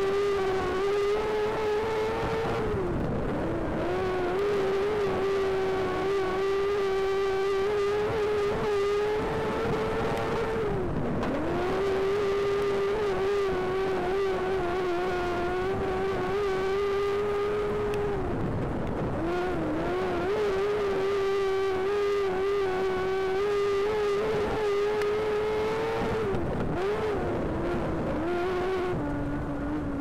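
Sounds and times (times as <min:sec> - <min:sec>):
race car engine revving: 0:00.0 - 0:30.0.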